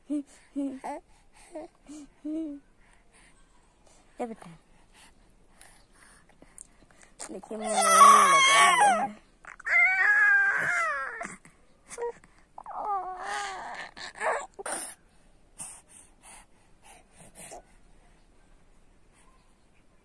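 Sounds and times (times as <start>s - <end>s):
baby crying: 7.6s - 11.4s, 12.0s - 14.6s.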